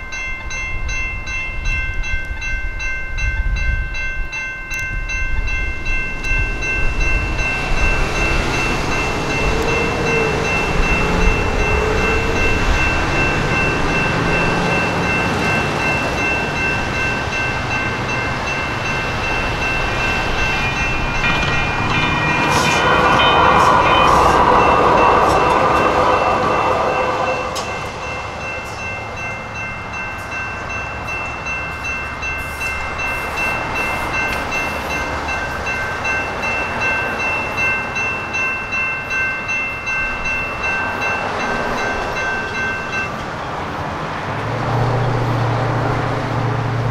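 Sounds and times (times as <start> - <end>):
crossing bell ringing: 0.0 - 46.9
light rail train rushing past: 0.0 - 46.9.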